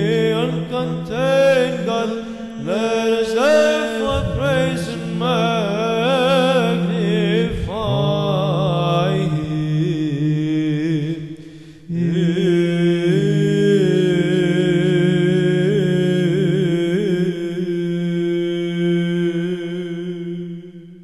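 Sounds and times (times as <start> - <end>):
low vocal drone: 0.0 - 21.0
melismatic chanting voice: 0.0 - 21.0.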